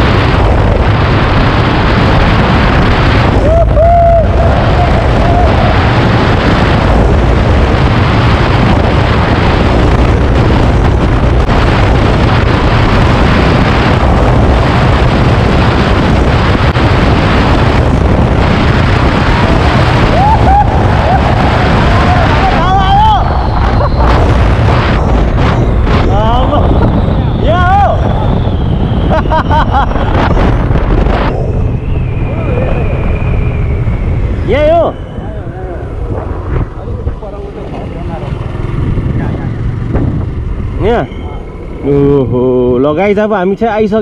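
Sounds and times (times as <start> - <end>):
wind buffeting microphone: 0.0 - 44.0
motorcycle engine running: 35.8 - 42.8.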